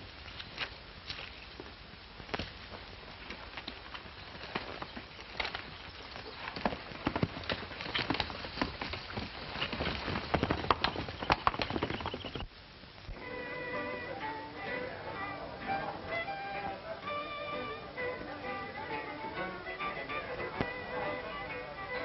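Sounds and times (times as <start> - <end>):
horse hoofbeats clattering: 1.4 - 12.5
music: 13.1 - 22.0.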